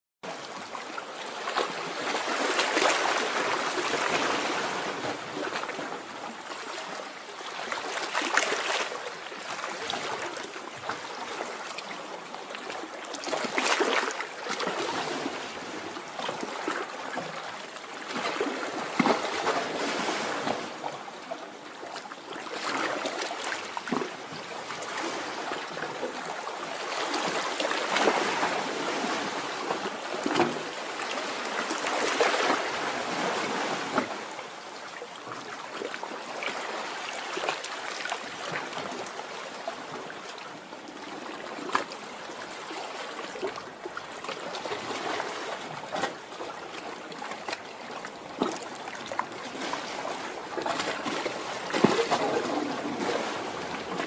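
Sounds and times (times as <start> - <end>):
sea waves washing onto shore: 47.4 - 54.0.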